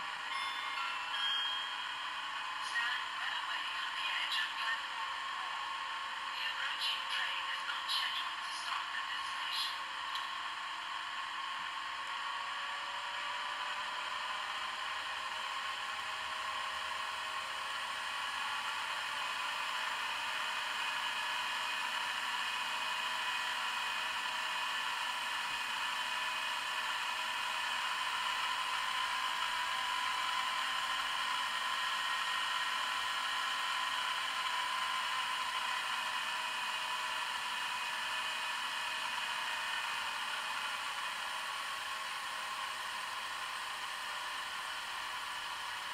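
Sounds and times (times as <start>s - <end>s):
diesel engine sound from small speaker: 0.0s - 45.9s.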